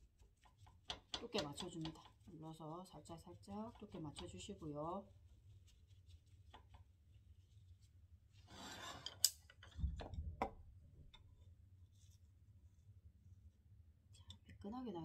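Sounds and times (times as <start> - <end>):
chopsticks scraping: 0.0 - 2.4, 8.3 - 9.5
chopsticks clicking on pan: 0.8 - 2.2.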